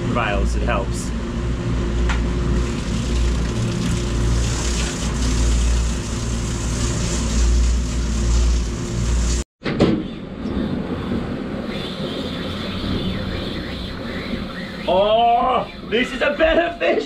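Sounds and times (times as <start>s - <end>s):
boat engine humming: 0.0s - 9.4s, 10.3s - 17.0s
water hiss: 2.6s - 9.4s
wind: 9.6s - 17.0s.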